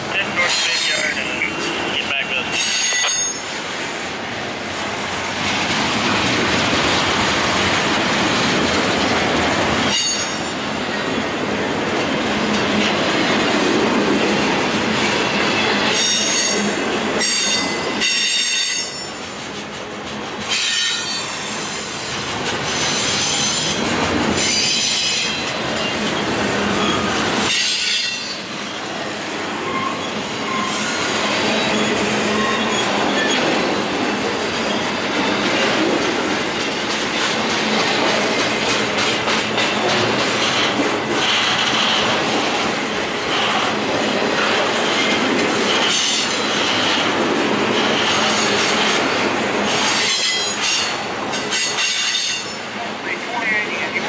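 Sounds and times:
train wheels rumbling on rail: 0.0 - 54.0
high-pitched wheel squeal: 29.6 - 33.4.

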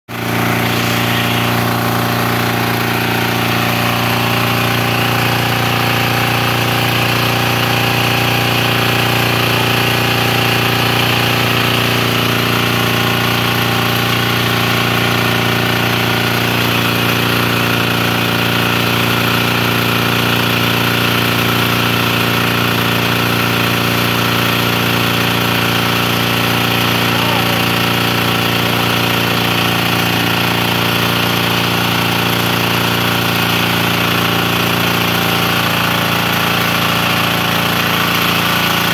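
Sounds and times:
small engine running steadily: 0.1 - 38.9.

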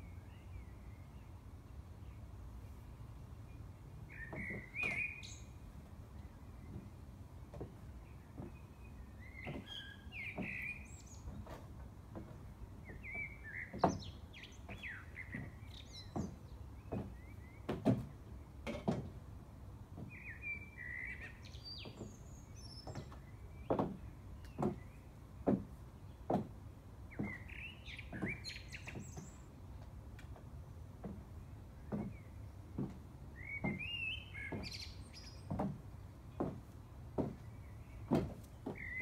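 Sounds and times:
small birds chirping: 0.0 - 18.7, 19.9 - 30.2, 31.0 - 39.0
heels knocking on wooden decking: 4.3 - 5.1, 6.6 - 8.7, 9.4 - 19.2, 19.9 - 20.2, 22.8 - 29.2, 30.2 - 34.8, 35.4 - 39.0.

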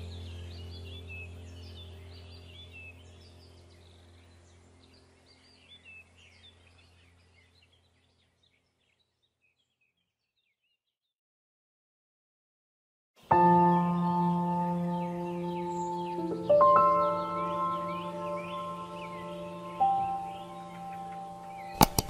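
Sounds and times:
low musical drone: 0.0 - 8.1, 13.2 - 21.9
small birds chirping: 0.0 - 11.1, 13.2 - 22.0.

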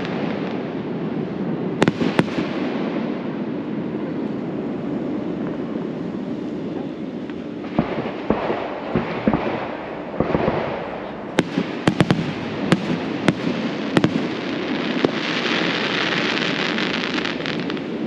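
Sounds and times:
fireworks bangs and pops: 1.7 - 3.3, 6.5 - 18.0.

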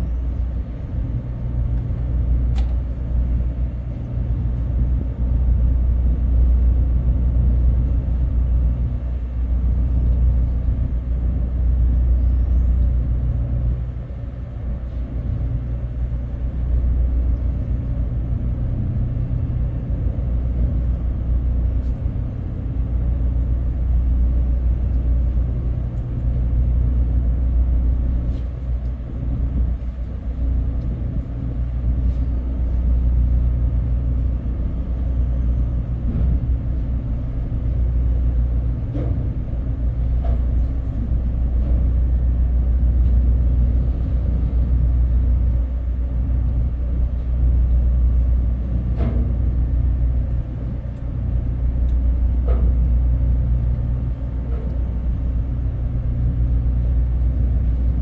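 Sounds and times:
engine machinery humming: 0.0 - 58.0.

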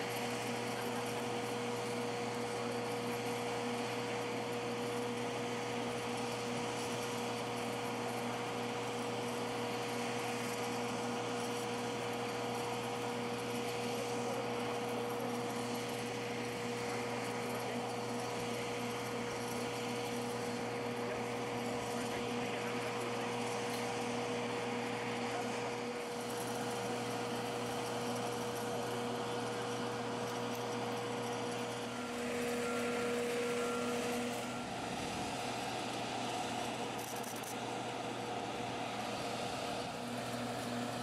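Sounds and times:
machinery hum: 0.0 - 41.0.

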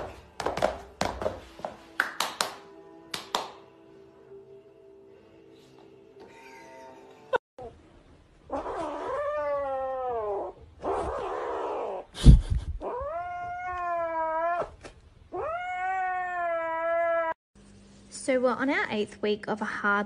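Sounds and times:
kitten yowling: 12.8 - 17.4.

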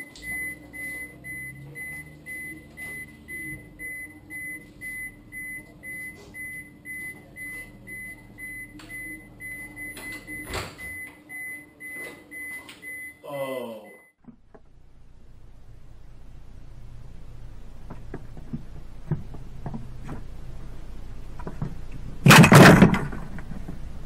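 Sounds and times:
refrigerator alarm beeping: 0.0 - 14.2
faint steady hum: 0.0 - 24.0.

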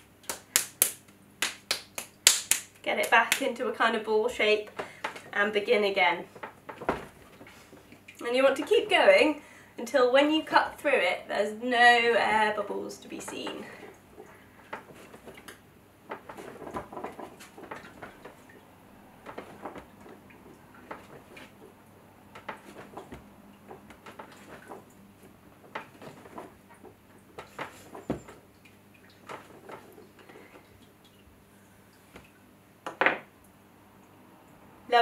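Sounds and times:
clay thump: 6.4 - 7.4, 27.4 - 28.4.

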